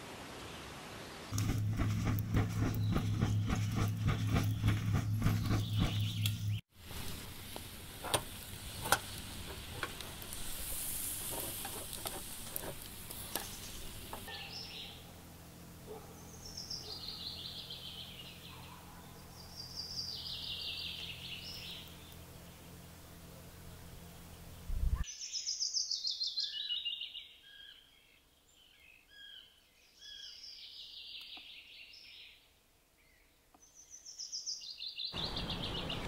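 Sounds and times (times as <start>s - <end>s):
sausages sizzling on a grill: 6.8s - 14.3s.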